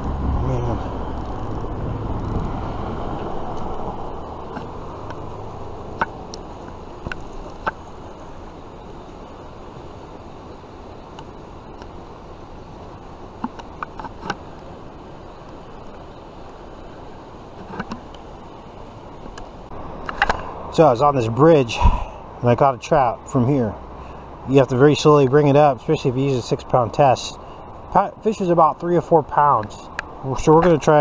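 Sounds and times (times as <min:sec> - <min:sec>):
outdoor rushing noise: 0:00.0 - 0:08.8.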